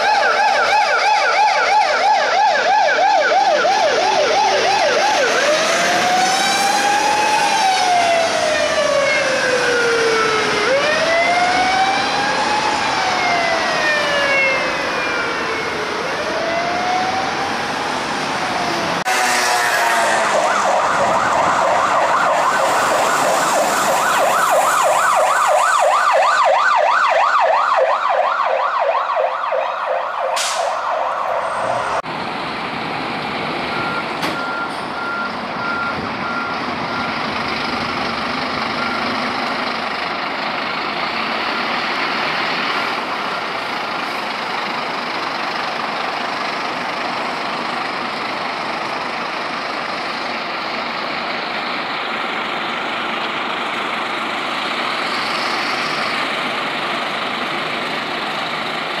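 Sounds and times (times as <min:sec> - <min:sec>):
siren yelping: 0:00.0 - 0:32.0
fire engine diesel engine: 0:00.0 - 0:59.0
traffic: 0:00.0 - 0:59.0.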